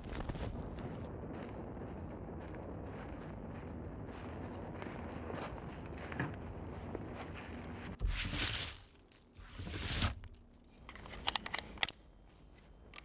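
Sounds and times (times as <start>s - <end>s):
clothing and gear rustling: 0.0s - 10.1s.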